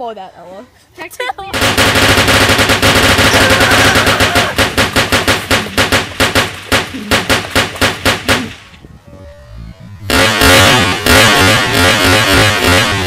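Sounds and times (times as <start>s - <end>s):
rapid automatic gunfire: 1.5s - 8.7s, 10.1s - 13.0s.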